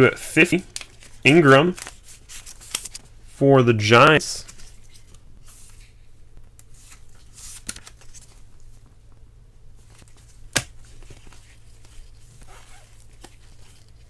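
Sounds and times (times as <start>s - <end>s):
low steady hum: 0.0s - 14.0s
cards rustling and sliding: 0.4s - 3.1s, 4.4s - 6.0s, 6.6s - 8.8s, 9.8s - 14.0s.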